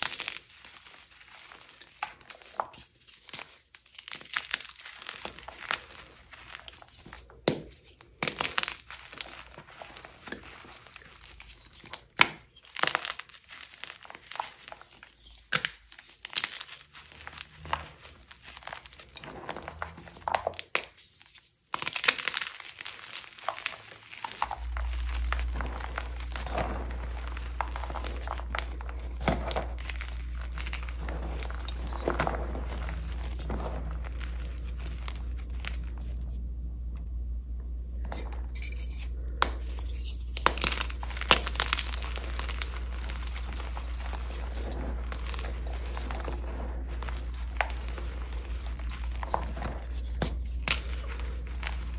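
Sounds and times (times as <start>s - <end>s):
chalk crunching by hand: 0.0s - 36.4s, 38.1s - 51.9s
low steady hum: 22.0s - 51.9s.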